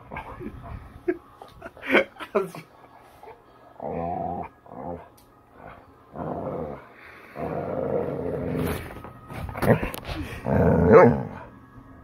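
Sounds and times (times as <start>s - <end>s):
dog play-growling: 3.8s - 11.5s.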